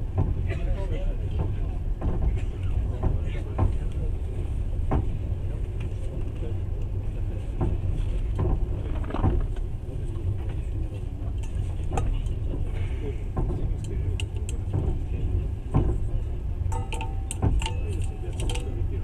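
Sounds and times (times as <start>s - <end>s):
train running rumble: 0.0s - 19.0s
train wheels knocking: 13.3s - 18.8s.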